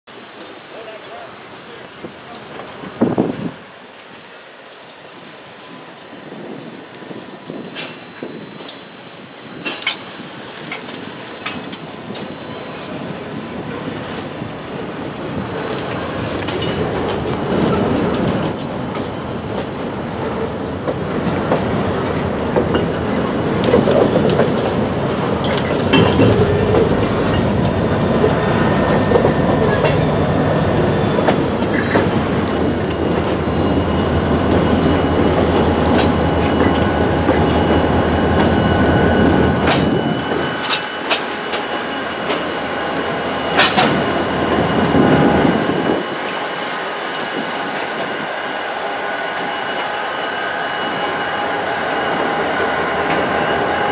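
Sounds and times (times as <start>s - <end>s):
diesel locomotive engine: 0.1s - 53.9s
wheels clacking over rail joints: 15.6s - 45.4s
thin wheel squeal: 25.4s - 53.9s.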